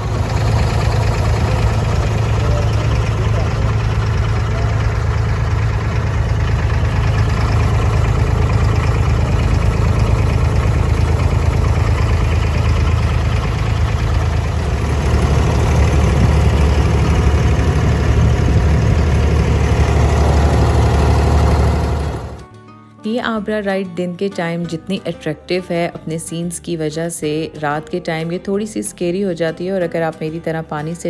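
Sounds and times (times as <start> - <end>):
diesel boat engine humming: 0.0 - 22.5.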